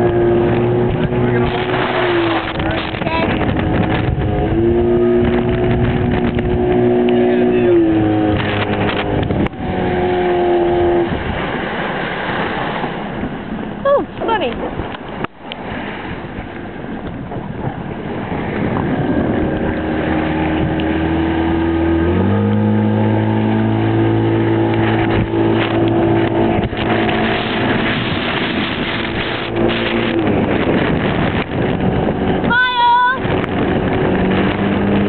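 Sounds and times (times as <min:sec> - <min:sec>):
motorboat outboard engine running: 0:00.0 - 0:35.0
wind on microphone: 0:00.0 - 0:35.0.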